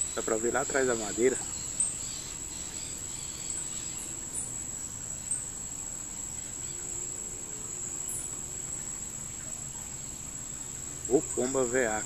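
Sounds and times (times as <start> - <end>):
insect trilling: 0.0 - 12.0.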